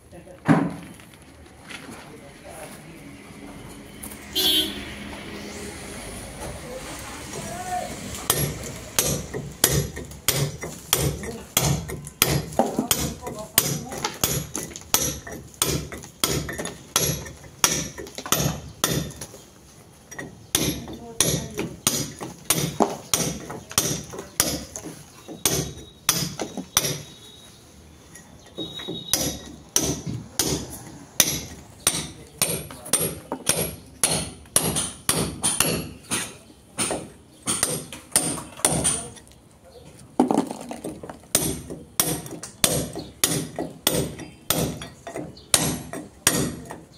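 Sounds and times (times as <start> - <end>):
hammer striking steel chisel: 8.3 - 19.3, 20.1 - 27.2, 28.2 - 39.2, 41.3 - 46.8.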